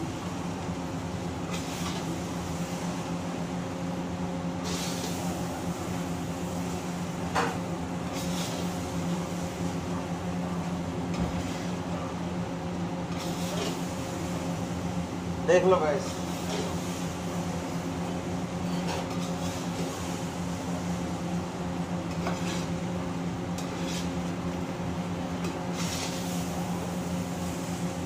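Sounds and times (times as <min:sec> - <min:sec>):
exhaust fan humming: 0:00.0 - 0:28.0
metal spatula scraping rice: 0:22.2 - 0:22.8, 0:23.6 - 0:24.2.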